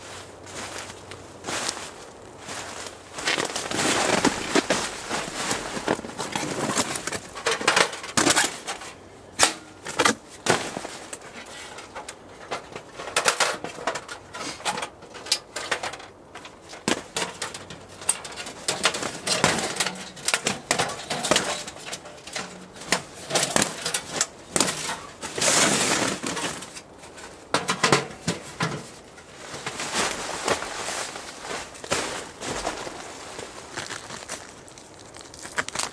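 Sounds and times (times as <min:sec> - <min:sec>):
rustling: 0:00.0 - 0:35.9
thin metal panels clanking: 0:03.2 - 0:29.8.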